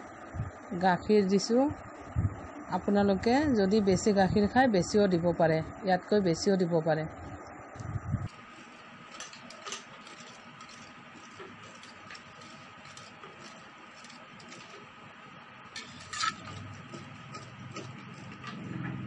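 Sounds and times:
whisk clicking against metal pot: 9.0 - 15.0, 15.7 - 18.6
whisk clack: 9.1 - 15.0.

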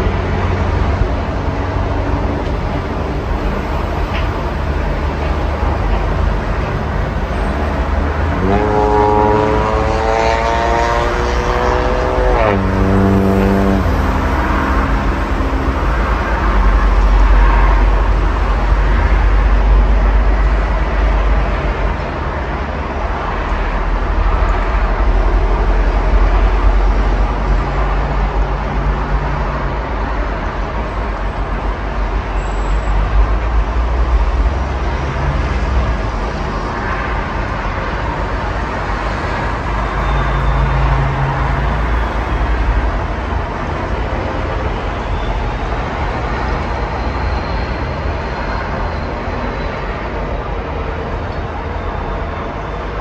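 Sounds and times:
heavy vehicle engine: 0.0 - 53.0
highway traffic rumble: 0.0 - 53.0.

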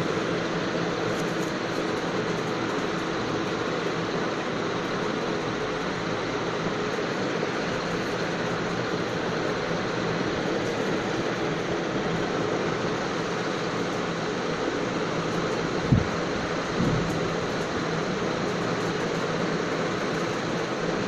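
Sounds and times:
steady rushing noise: 0.0 - 21.0.

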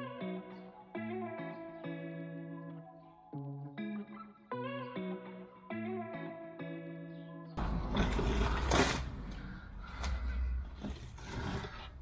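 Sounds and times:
rustling and scraping: 7.6 - 12.0.

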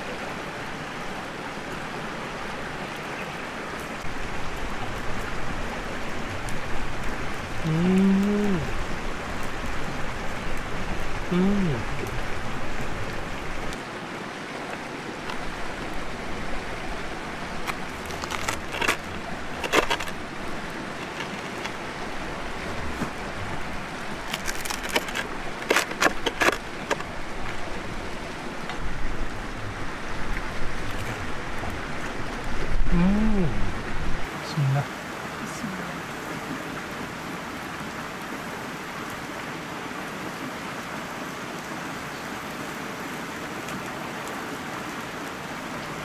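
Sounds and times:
knife crunching through pizza crust: 17.7 - 19.0, 24.3 - 26.6.

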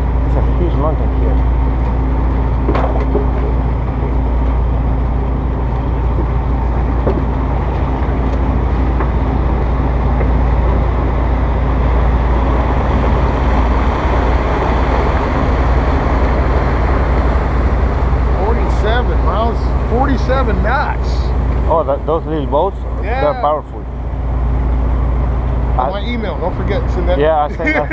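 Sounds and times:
boat engines droning: 0.0 - 27.9
churning water: 0.0 - 27.9.

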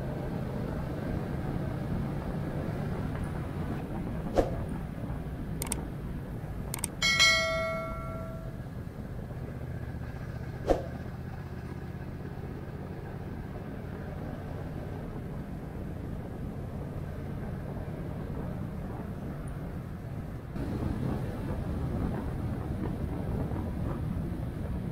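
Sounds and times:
mouse clicks: 6.8 - 7.0
bright bell ding: 6.8 - 8.6.

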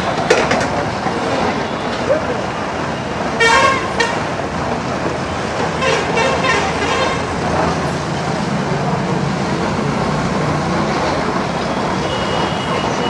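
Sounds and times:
street traffic: 0.0 - 13.0
vehicle horns tooting: 1.4 - 4.4, 5.8 - 7.4, 11.6 - 13.0.

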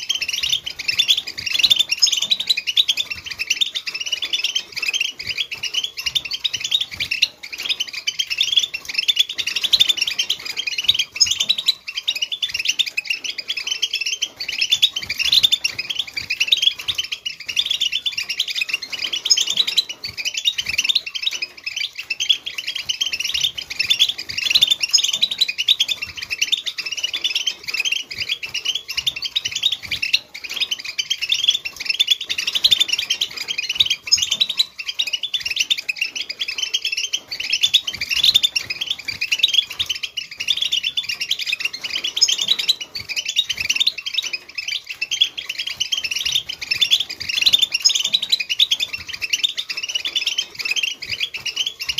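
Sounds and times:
goldfinch twittering song: 0.0 - 51.9.

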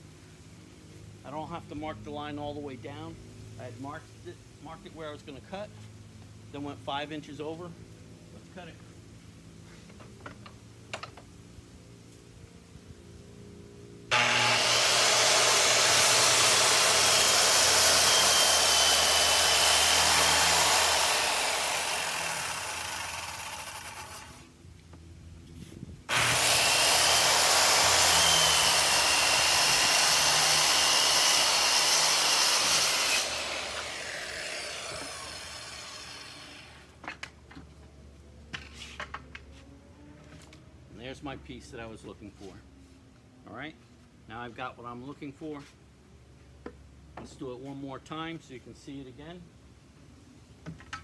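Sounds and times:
circular saw cutting wood: 14.1 - 24.5, 26.1 - 37.0.

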